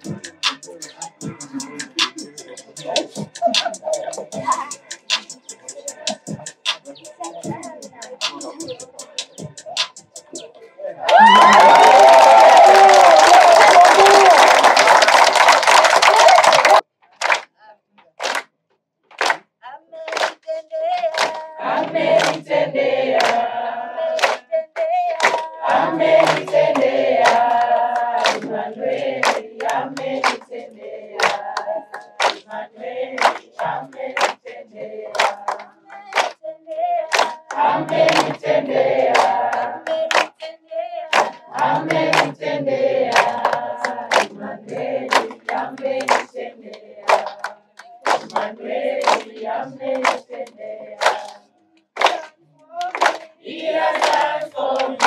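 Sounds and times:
group singing worship song: 0.0s - 4.6s, 5.4s - 7.3s, 20.4s - 55.0s
hand clapping: 12.6s - 19.5s, 20.1s - 22.4s, 23.2s - 23.4s, 24.1s - 28.5s, 29.2s - 30.6s, 31.2s - 32.5s, 33.2s - 40.5s, 41.1s - 42.4s, 43.1s - 51.4s, 52.0s - 55.0s.

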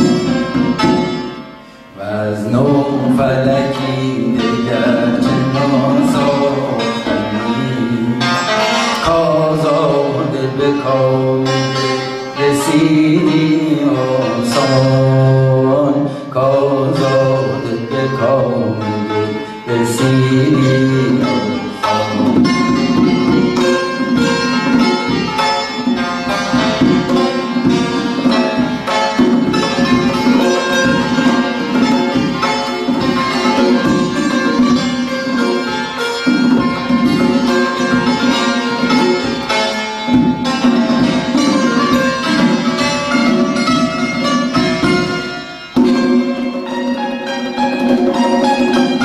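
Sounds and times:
santur struck strings: 0.0s - 49.0s
man singing long held notes: 1.9s - 8.4s, 9.0s - 22.9s.

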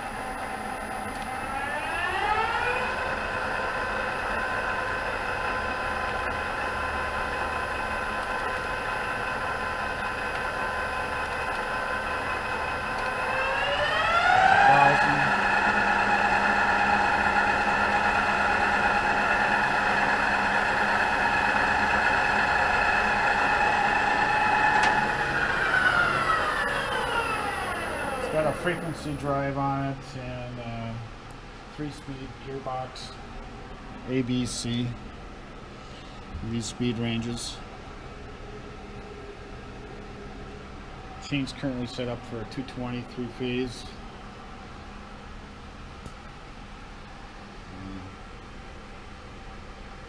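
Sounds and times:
lathe spindle motor whine: 0.0s - 30.1s.

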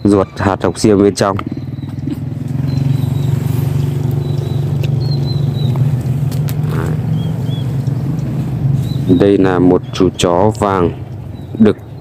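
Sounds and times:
small engine idling: 0.4s - 9.6s.

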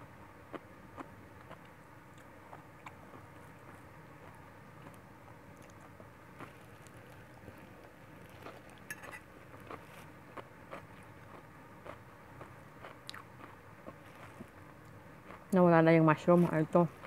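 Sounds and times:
metal fork clinking on plate: 8.9s - 9.2s.

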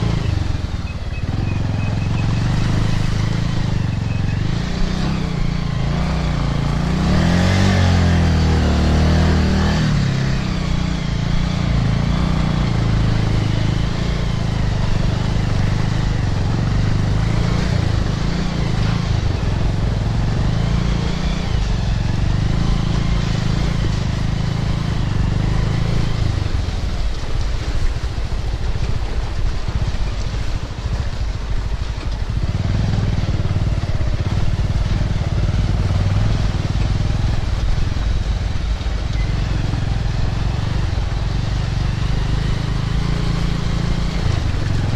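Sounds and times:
motorcycle engine running: 0.0s - 44.9s
tyre noise on dirt track: 0.0s - 44.9s.

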